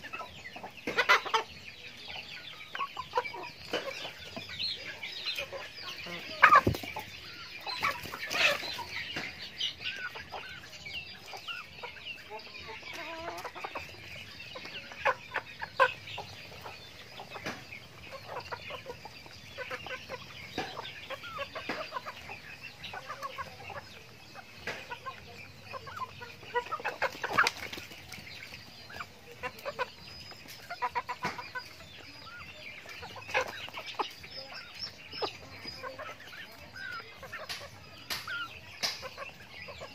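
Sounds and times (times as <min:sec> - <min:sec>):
chickens clucking: 0:00.0 - 0:39.9.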